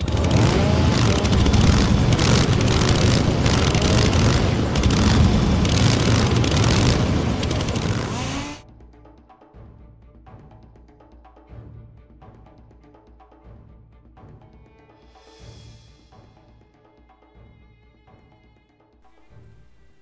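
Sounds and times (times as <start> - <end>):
chainsaw engine running: 0.0 - 8.6.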